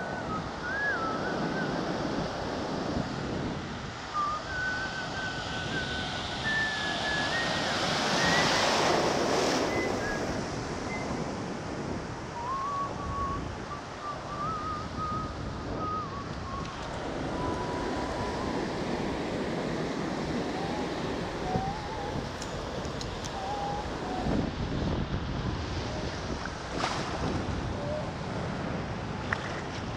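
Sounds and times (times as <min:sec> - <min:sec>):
faint thin whistling tone: 0:00.0 - 0:01.8, 0:04.1 - 0:11.2, 0:12.3 - 0:24.4, 0:27.8 - 0:28.1
ocean surf washing onto beach: 0:00.0 - 0:12.8, 0:13.5 - 0:29.9
wind buffeting microphone: 0:00.0 - 0:29.9.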